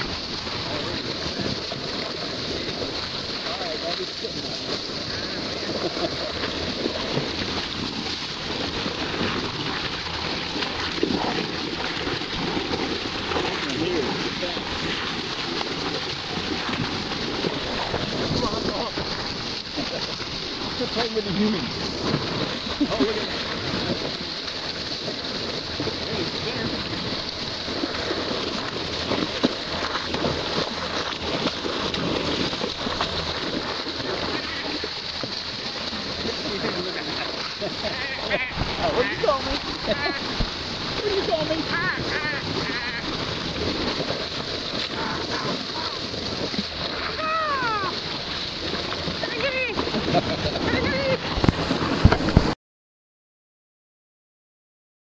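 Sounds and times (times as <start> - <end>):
water rushing along boat bow: 0.0 - 52.6
wind on microphone: 49.7 - 52.6.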